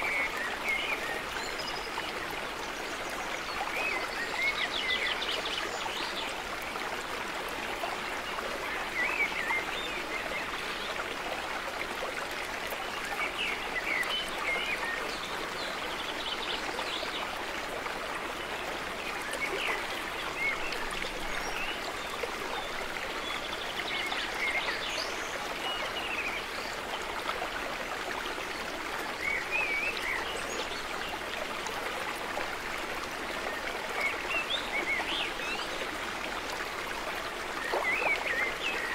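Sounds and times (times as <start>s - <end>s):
stream water rushing: 0.0s - 38.9s.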